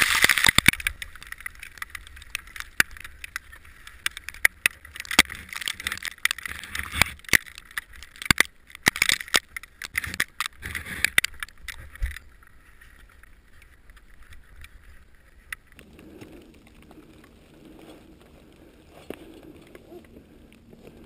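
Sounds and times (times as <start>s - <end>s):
crampons scraping on rock and ice: 0.0s - 12.3s
faint low hum: 12.0s - 21.0s.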